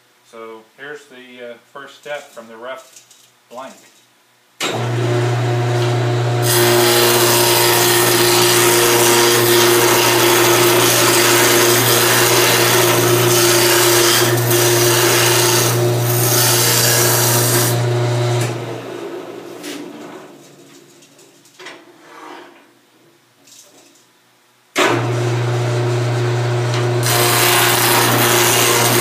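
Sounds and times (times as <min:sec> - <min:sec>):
turning tool cutting wood: 0:04.6 - 0:18.7, 0:24.8 - 0:29.0
wood lathe motor hum: 0:04.8 - 0:18.6, 0:25.0 - 0:29.0.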